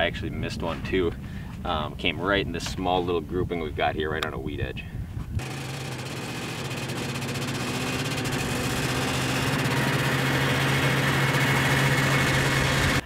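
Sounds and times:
snowmobile engine running: 5.4s - 13.0s.

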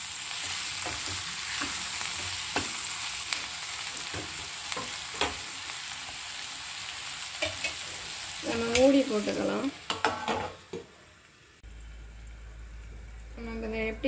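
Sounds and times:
vegetables sizzling in oil: 0.0s - 14.0s
spatula scraping and tapping pan: 0.4s - 3.0s, 7.4s - 7.9s, 9.9s - 10.9s.

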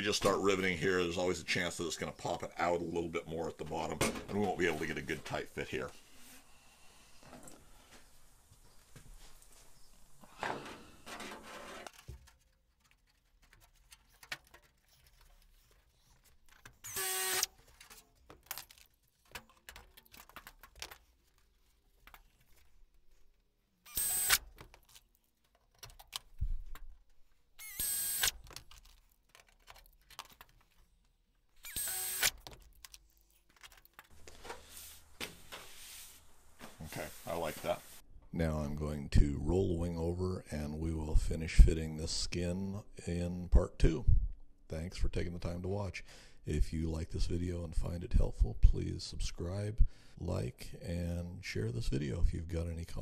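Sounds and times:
pneumatic air drill whining: 16.8s - 17.5s, 23.9s - 24.4s, 27.6s - 28.4s, 31.6s - 32.4s.

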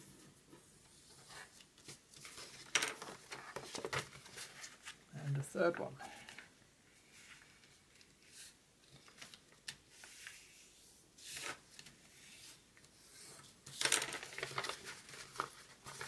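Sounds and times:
paper rustling and sliding: 6.3s - 16.0s.

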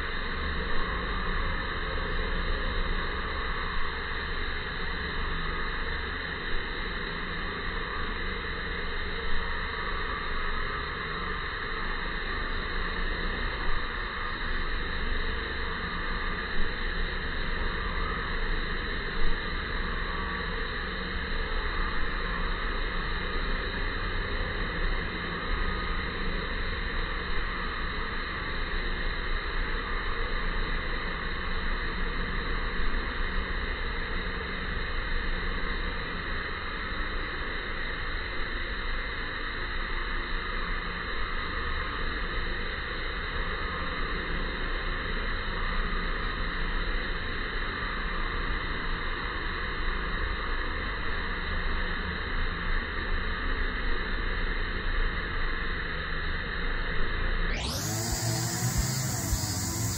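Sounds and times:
steady background hiss: 57.6s - 59.9s.

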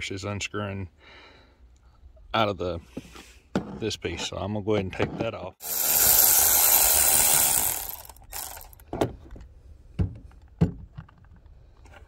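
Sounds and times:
electric ratchet whirring: 5.6s - 8.8s.

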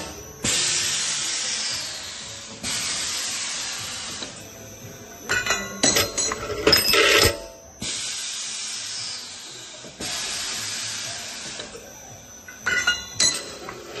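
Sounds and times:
compressed air hissing: 0.4s - 4.4s, 7.8s - 11.8s
metal clinking: 12.5s - 13.8s.

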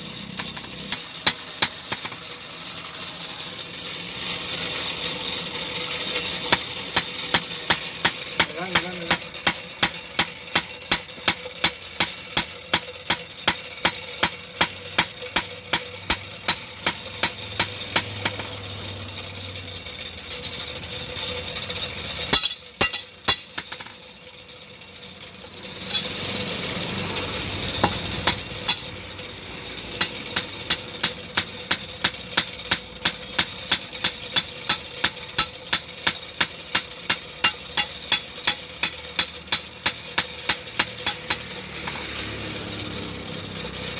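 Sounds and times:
hammer striking metal on anvil: 0.3s - 2.4s, 6.4s - 18.8s, 22.3s - 24.0s, 25.7s - 26.7s, 27.6s - 29.0s, 29.7s - 42.2s.

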